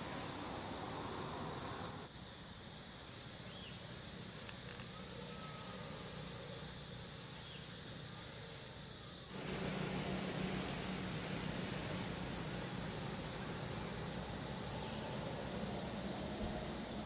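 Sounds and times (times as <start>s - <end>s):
even hiss: 0.0s - 17.0s
low hum: 9.3s - 17.0s.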